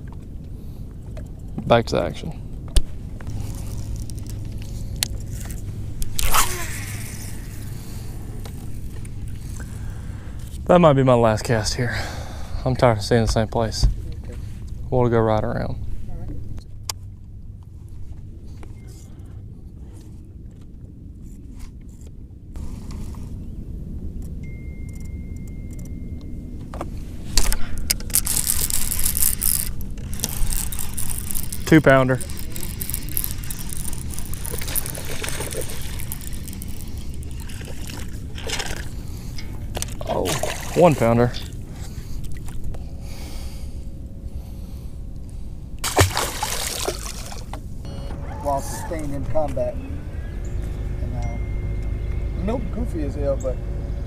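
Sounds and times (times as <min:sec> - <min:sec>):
steady low hum: 0:00.0 - 0:54.0
fishing rod swish: 0:06.2 - 0:07.6
reel spool spinning whine: 0:28.1 - 0:38.7.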